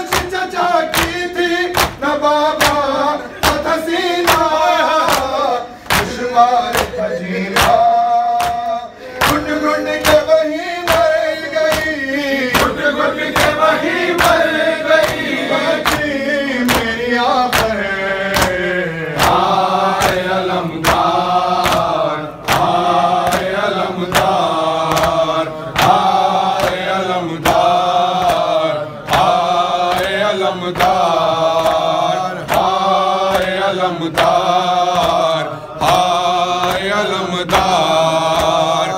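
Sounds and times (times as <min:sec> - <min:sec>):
men chanting in unison: 0:00.0 - 0:38.9
sharp rhythmic beats: 0:00.0 - 0:38.9.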